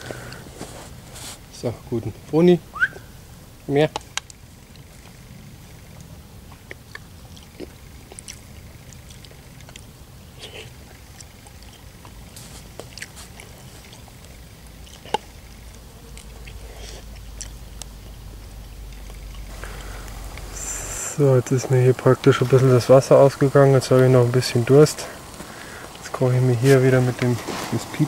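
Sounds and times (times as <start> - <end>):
soft chewing: 4.0 - 22.7, 24.7 - 28.0.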